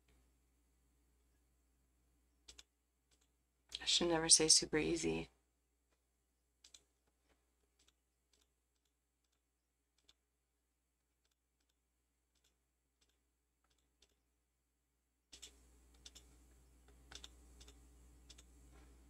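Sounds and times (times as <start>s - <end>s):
computer mouse clicks: 2.4s - 3.8s, 6.6s - 6.9s, 10.0s - 10.2s, 11.2s - 14.2s, 15.3s - 18.5s.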